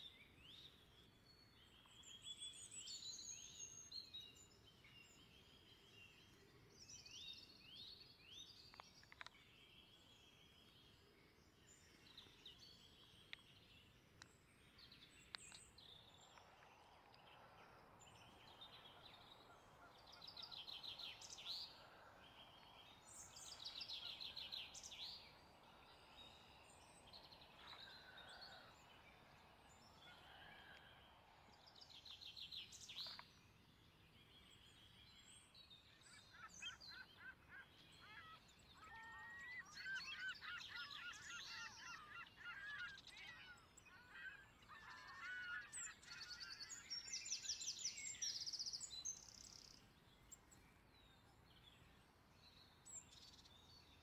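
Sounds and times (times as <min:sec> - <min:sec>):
faint outdoor hiss: 0:00.0 - 0:38.9, 0:46.6 - 0:54.0
wild birds calling: 0:16.2 - 0:31.2.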